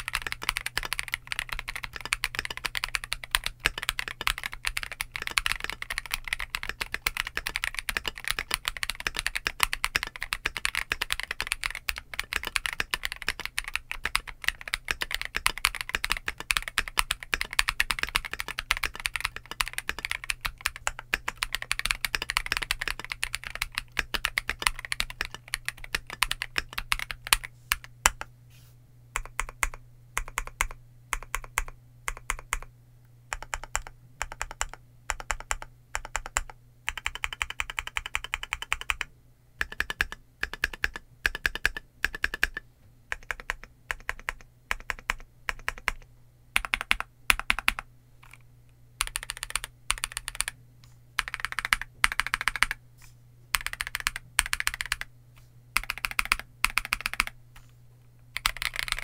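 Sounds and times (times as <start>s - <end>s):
mechanical keyboard typing: 0.0s - 28.3s, 29.2s - 32.7s, 33.3s - 48.4s, 49.0s - 50.6s, 51.2s - 52.8s, 53.5s - 55.1s, 55.8s - 57.4s, 58.4s - 59.0s.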